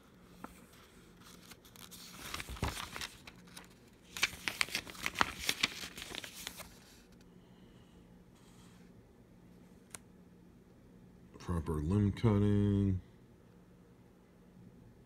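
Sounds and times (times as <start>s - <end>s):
paper pages rustling: 0.0s - 7.2s
paper crackling and flapping: 0.2s - 7.2s.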